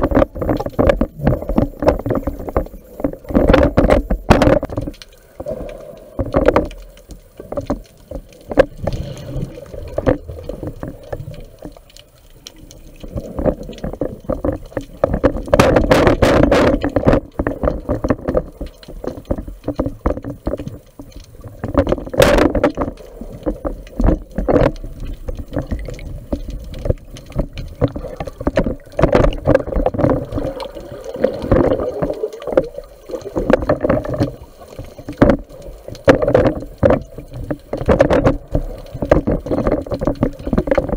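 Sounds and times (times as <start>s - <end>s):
water rushing underwater: 0.0s - 40.9s.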